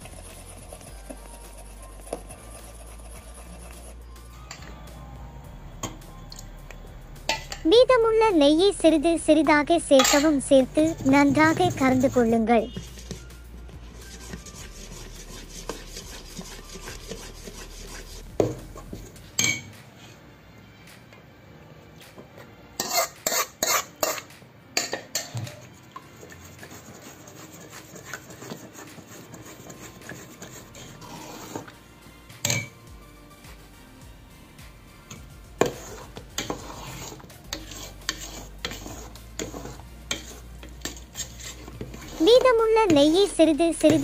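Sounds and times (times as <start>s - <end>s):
metal ladle scraping a pot: 7.3s - 8.7s, 10.0s - 19.6s, 22.8s - 31.8s, 35.1s - 44.0s.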